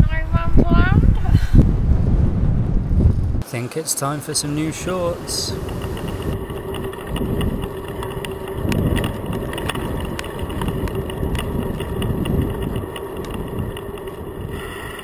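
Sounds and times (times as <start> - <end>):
wind buffeting microphone: 0.0 - 3.5, 4.5 - 15.0
bicycle rumbling and rattling: 4.6 - 15.0.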